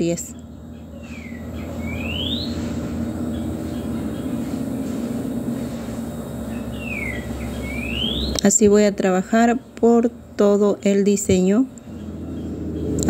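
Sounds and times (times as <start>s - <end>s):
rising whistled chirp: 0.3s - 8.5s
low rumble: 11.8s - 13.0s.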